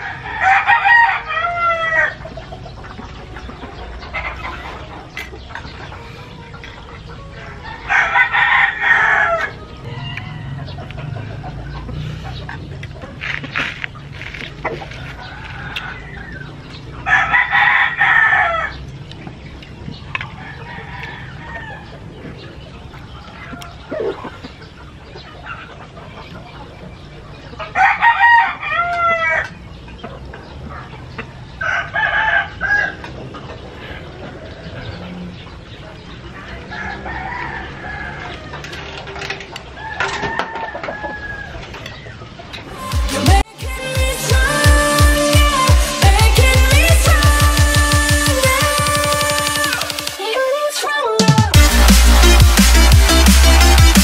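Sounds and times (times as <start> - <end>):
rooster crowing: 0.0 - 2.2, 7.4 - 11.6, 15.0 - 18.8, 20.4 - 22.0, 27.7 - 29.5, 31.6 - 33.1, 36.5 - 38.7, 39.8 - 41.8
chickens clucking: 0.0 - 54.0
drawn-out chicken calls: 0.0 - 54.0.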